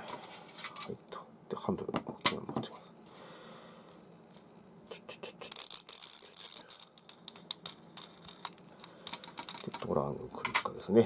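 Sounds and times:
small metal parts clicking: 5.5 - 9.9
metal parts scraping and rattling: 5.5 - 10.7.

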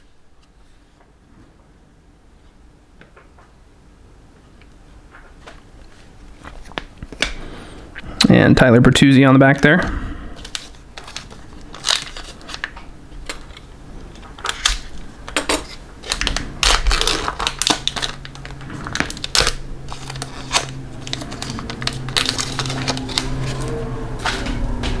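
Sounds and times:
low steady hum: 0.0 - 25.0
trading cards clicking and rustling: 10.4 - 25.0.

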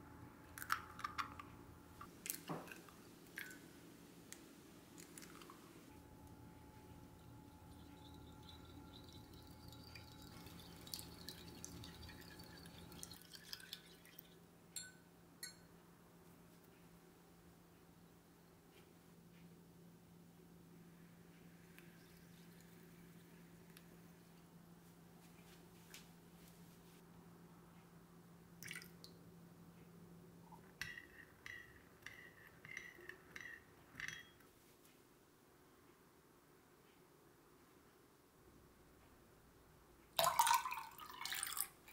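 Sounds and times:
stirrer beating eggs in glass jug: 7.1 - 14.9
spoon clinking in ceramic bowl: 14.8 - 15.7, 30.8 - 34.4.

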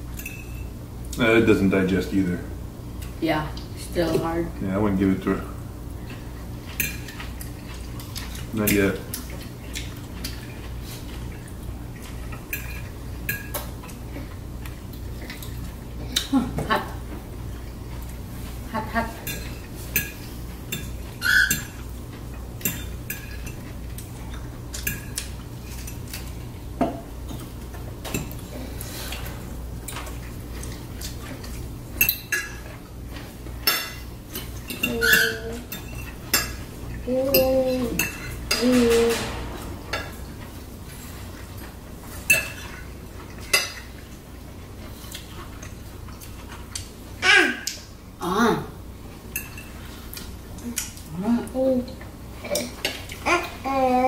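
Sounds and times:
cutlery clinking on plates: 19.2 - 21.8, 24.3 - 28.4, 33.6 - 36.7, 42.2 - 42.8.

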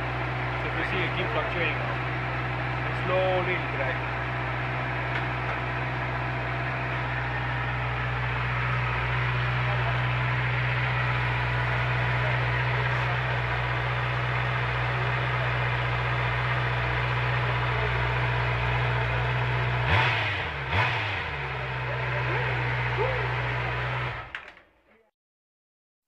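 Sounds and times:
motorcycle engine idling: 0.0 - 24.4
engine blips: 0.0 - 24.6.

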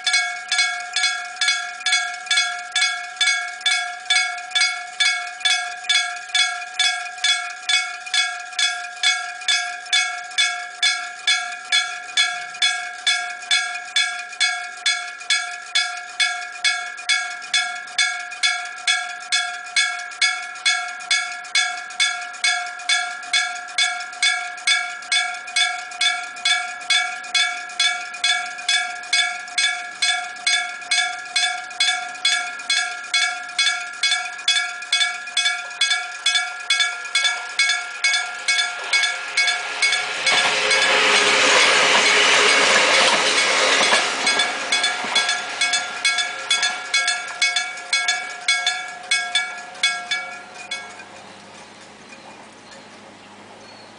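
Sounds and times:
train passing: 0.0 - 16.2, 23.2 - 53.7
level crossing bell ringing: 0.0 - 53.0.

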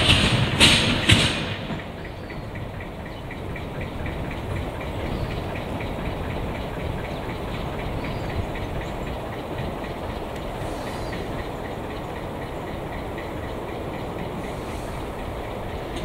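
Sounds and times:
loud metallic clanks: 0.0 - 4.5
low engine rumble: 0.0 - 16.0
light regular ticking: 1.8 - 16.0.

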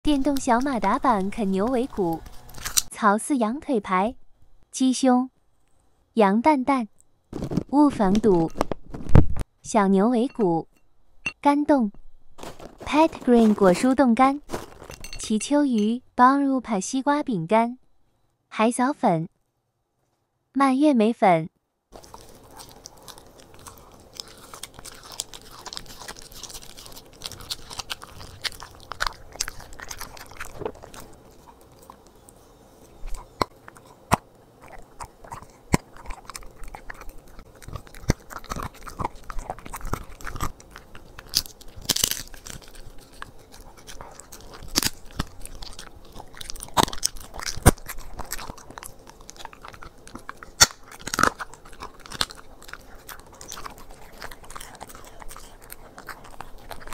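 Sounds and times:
dog chewing and crunching food: 0.0 - 3.0, 7.3 - 10.6, 12.4 - 16.0, 21.9 - 56.9.

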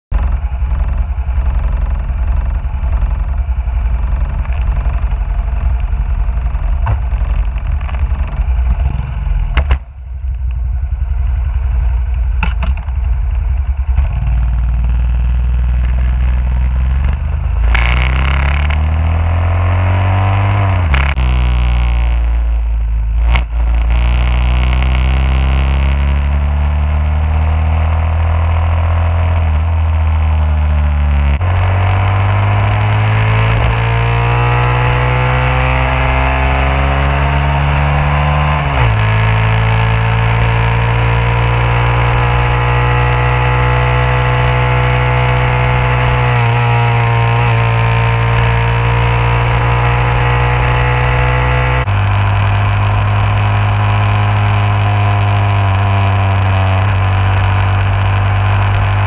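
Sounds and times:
motorcycle engine revving: 0.1 - 59.0
brief knock: 12.4 - 12.9.

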